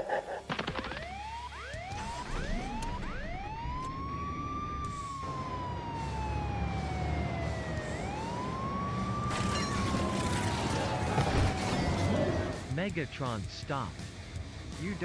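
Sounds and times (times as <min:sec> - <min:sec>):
emergency siren wailing: 0:00.9 - 0:12.6.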